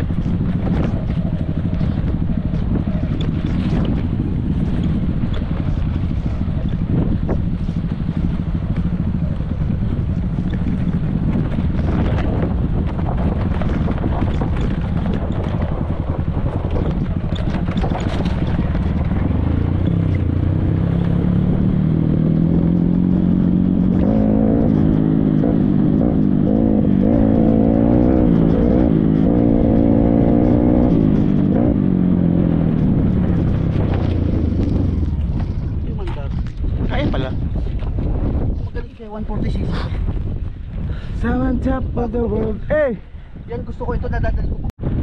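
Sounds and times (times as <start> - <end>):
small motorcycle engine revving: 0.0 - 35.7.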